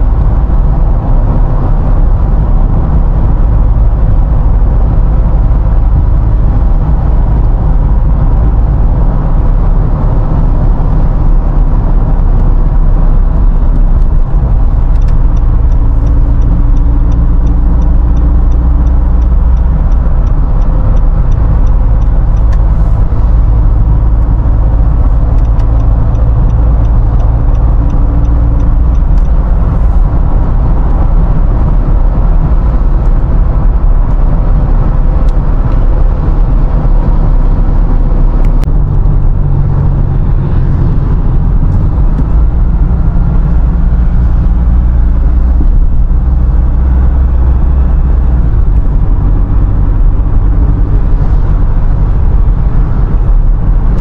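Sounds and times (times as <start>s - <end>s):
engine hum: 0.0s - 54.0s
road and engine rumble: 0.0s - 54.0s.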